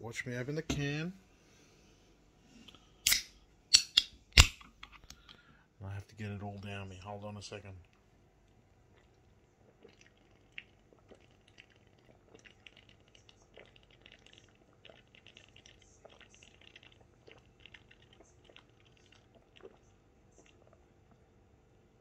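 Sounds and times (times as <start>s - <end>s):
man gulping and swallowing: 8.9s - 21.3s.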